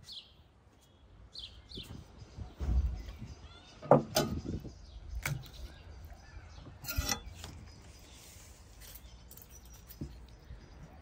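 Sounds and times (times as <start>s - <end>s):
knife knocks and scrapes: 6.8s - 7.6s.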